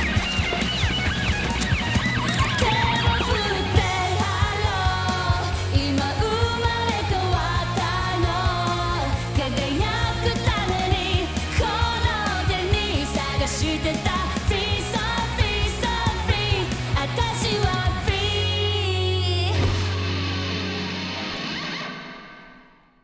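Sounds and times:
steady drum beat: 0.0 - 18.5
bass: 0.0 - 22.0
electric guitar: 0.0 - 23.0
woman singing: 2.4 - 19.8.

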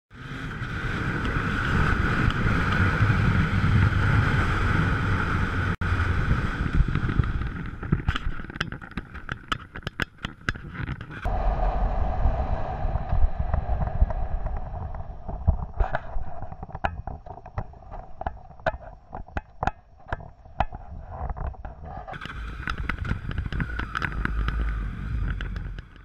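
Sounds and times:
motorcycle engine running: 0.1 - 8.5, 22.1 - 26.0
wind noise on microphone: 0.2 - 26.0
sharp clicks and knocks: 6.8 - 11.3, 14.5 - 26.0.

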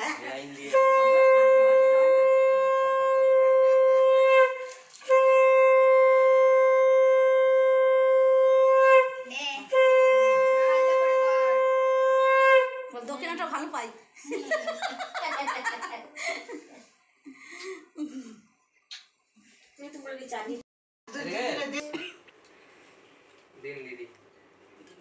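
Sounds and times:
conch shell blasts: 0.6 - 13.0.

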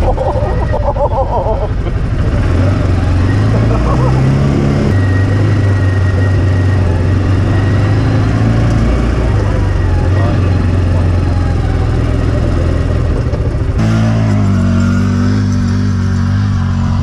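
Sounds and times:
vehicle engine running: 0.0 - 17.0.

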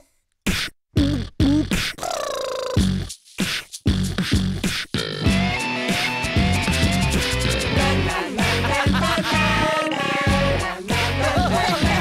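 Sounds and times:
beatboxing: 0.0 - 12.0
band music: 5.2 - 12.0.

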